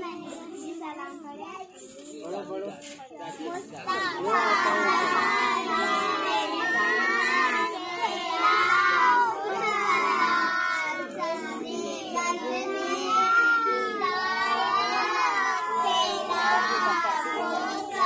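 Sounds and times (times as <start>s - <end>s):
children singing together: 3.8s - 18.0s.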